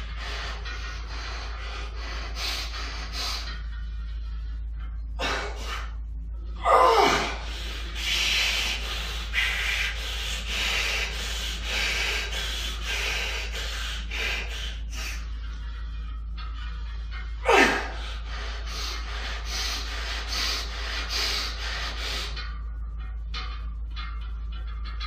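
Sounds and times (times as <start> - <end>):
man breathing hard: 0.0 - 3.9, 5.1 - 15.5, 17.4 - 22.6
low hum: 0.0 - 25.0
man groaning: 6.6 - 7.4, 17.4 - 18.0.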